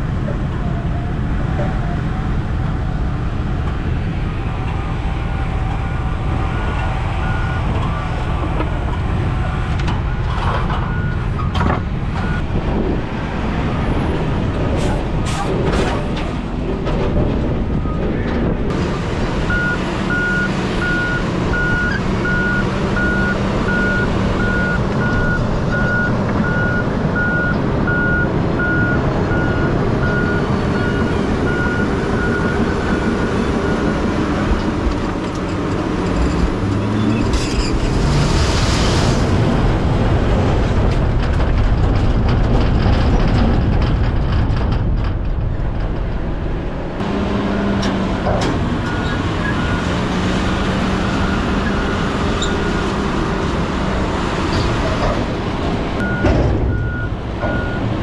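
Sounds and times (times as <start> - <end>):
diesel truck engine running hard: 0.0 - 58.0
reversing alarm beeping: 19.5 - 33.9, 56.0 - 57.9.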